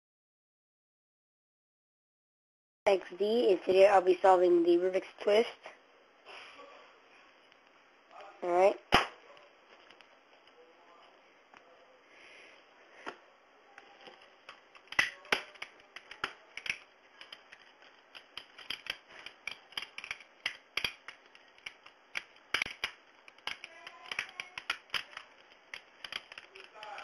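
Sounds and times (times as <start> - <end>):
plastic puzzle segments clicking: 14.1 - 27.0.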